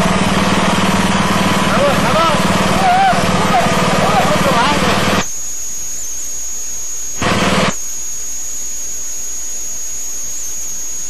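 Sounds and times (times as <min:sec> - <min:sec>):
loud boat engine noise: 0:00.0 - 0:05.3, 0:07.2 - 0:07.8
high-pitched whine: 0:00.0 - 0:11.0.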